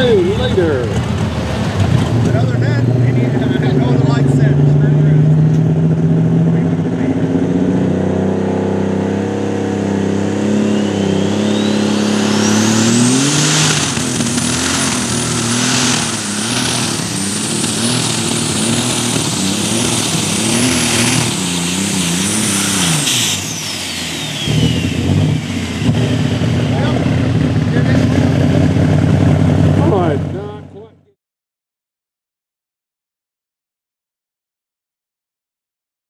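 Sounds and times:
tractor engine revving: 0:00.0 - 0:31.2
high turbo whistle: 0:10.1 - 0:27.2.

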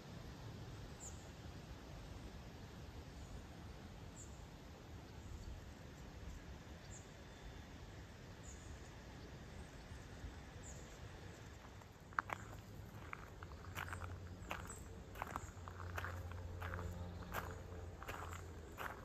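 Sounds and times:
low steady rumble: 0:07.7 - 0:19.0.

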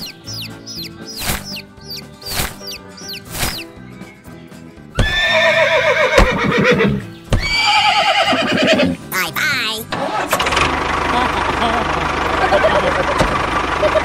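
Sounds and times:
quiet background music: 0:00.0 - 0:10.2
horse whinnies: 0:05.0 - 0:09.0.

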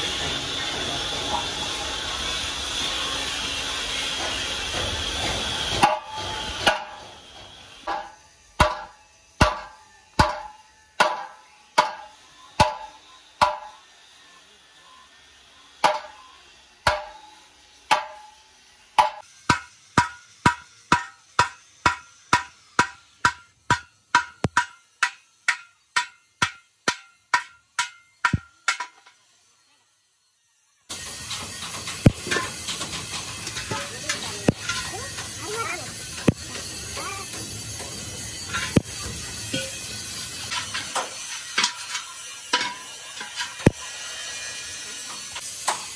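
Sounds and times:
steady hiss: 0:00.0 - 0:45.9
hammer striking steel rim: 0:03.9 - 0:07.2, 0:07.8 - 0:13.8, 0:15.8 - 0:29.2, 0:31.0 - 0:35.4, 0:36.0 - 0:44.6.

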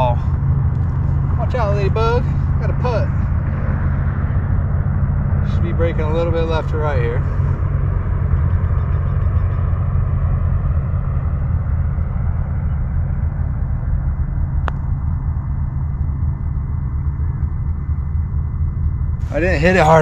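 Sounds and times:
low rumble: 0:00.0 - 0:20.0
propeller plane engine droning: 0:00.0 - 0:20.0
putter striking golf ball: 0:14.4 - 0:15.3.

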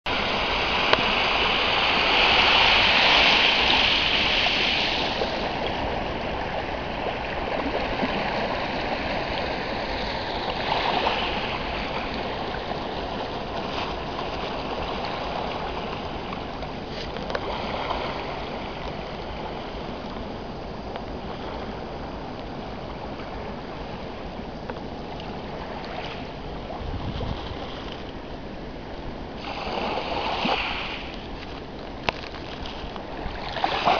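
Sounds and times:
waves washing onto gravel: 0:00.1 - 0:06.4, 0:29.4 - 0:33.9.

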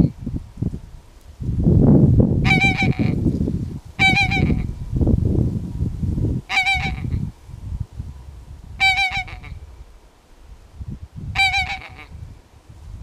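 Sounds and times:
goose honking: 0:02.5 - 0:03.2, 0:04.0 - 0:04.7, 0:06.5 - 0:07.2, 0:08.8 - 0:09.6, 0:11.4 - 0:12.1.

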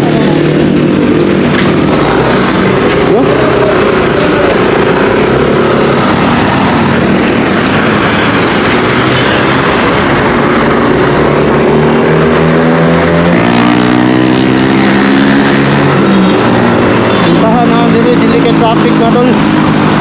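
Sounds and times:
scooter engine accelerating: 0:00.0 - 0:20.0.

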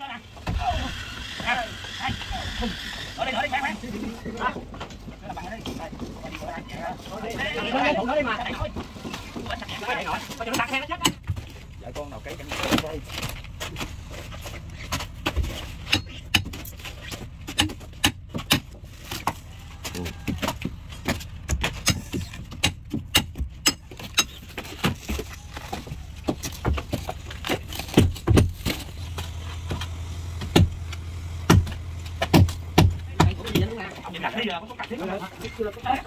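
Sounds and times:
low steady hum: 0:11.5 - 0:36.0.

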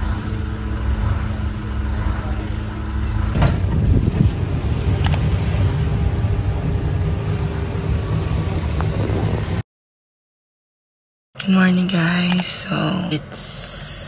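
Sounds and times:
tricycle engine rumble: 0:00.0 - 0:09.6.

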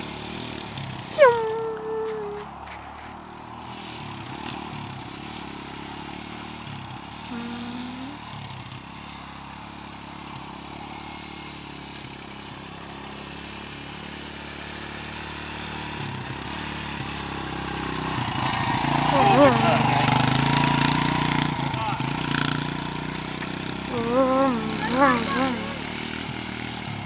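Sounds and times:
dirt bike engine revving: 0:04.3 - 0:27.0.

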